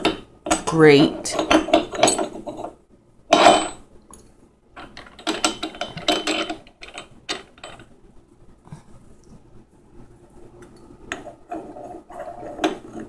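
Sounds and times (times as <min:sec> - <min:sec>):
metal grinder parts clinking: 0:00.0 - 0:02.7, 0:03.3 - 0:03.8, 0:04.8 - 0:07.8.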